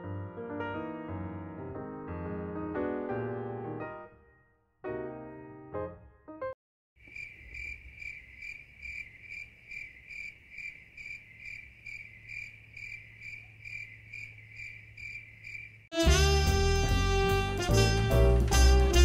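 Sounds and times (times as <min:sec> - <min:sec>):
cricket chirping: 0:07.0 - 0:15.9.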